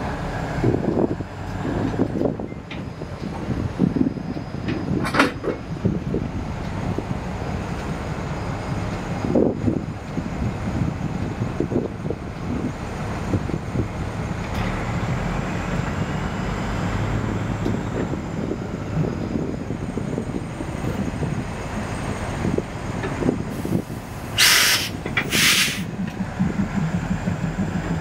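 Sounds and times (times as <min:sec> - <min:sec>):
diesel locomotive engine rumbling: 0:00.0 - 0:28.0
air brakes hissing: 0:23.5 - 0:26.0.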